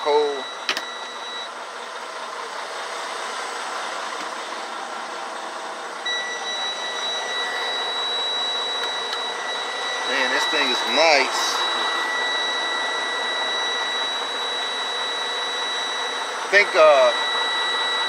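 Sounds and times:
air conditioning air rush: 4.4s - 18.0s
thin high whine: 6.0s - 18.0s.

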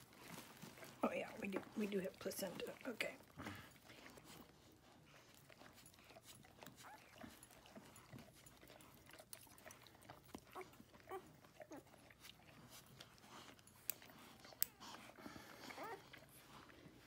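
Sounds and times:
puppy squeaking and whimpering: 6.6s - 7.9s, 15.6s - 16.4s.

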